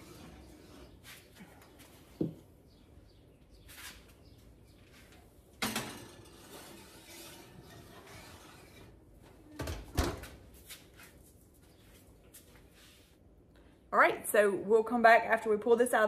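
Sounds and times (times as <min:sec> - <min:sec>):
oven rack rattling: 0:05.6 - 0:08.9.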